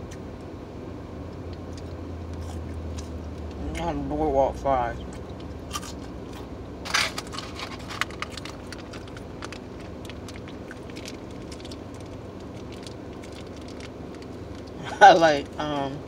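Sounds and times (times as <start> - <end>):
steady low hum: 0.0 - 16.0
paper packet crinkling: 6.9 - 14.8.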